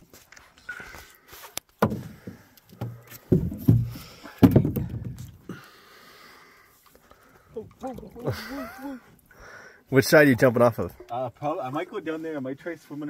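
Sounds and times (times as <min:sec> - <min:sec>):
hollow knocks in a boat: 0:01.8 - 0:05.4.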